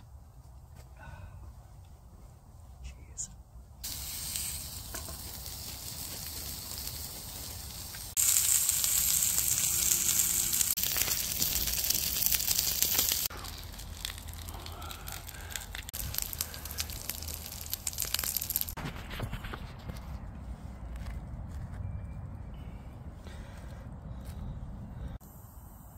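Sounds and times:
patties sizzling in a frying pan: 0:03.8 - 0:13.3, 0:15.8 - 0:18.8
fat crackling and popping: 0:03.8 - 0:19.5.

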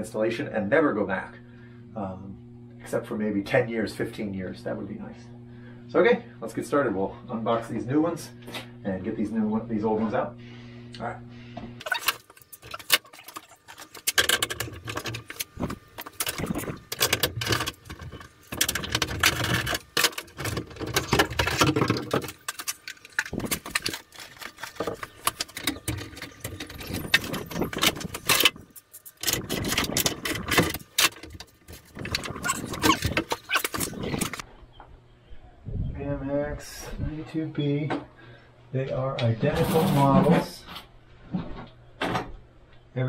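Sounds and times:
metal parts clicking and rattling: 0:11.8 - 0:34.4.

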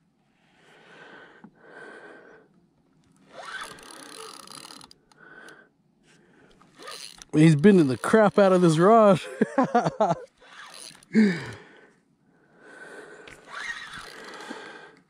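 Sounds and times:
fishing reel gears whirring: 0:03.2 - 0:05.6, 0:06.7 - 0:09.1, 0:10.3 - 0:11.1, 0:13.3 - 0:15.0.

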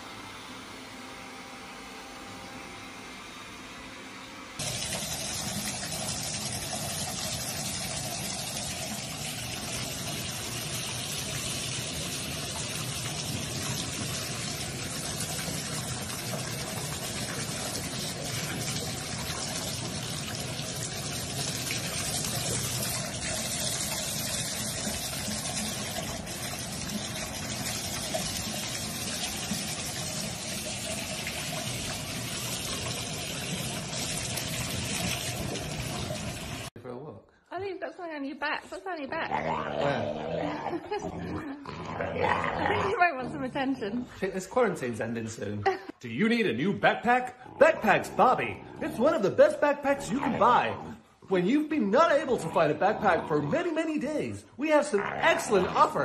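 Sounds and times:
faucet pouring into bathtub: 0:04.6 - 0:36.7, 0:46.6 - 0:56.0.

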